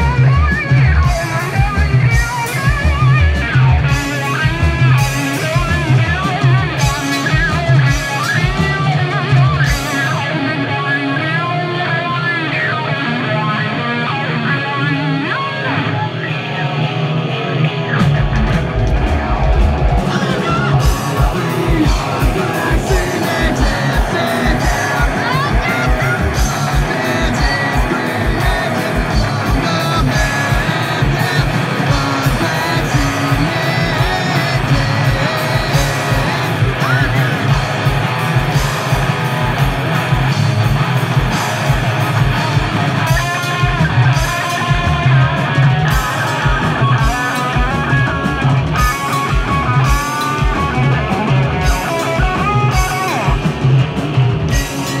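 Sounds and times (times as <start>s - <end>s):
distorted electric guitars: 0.0s - 55.0s
drum kit: 0.0s - 55.0s.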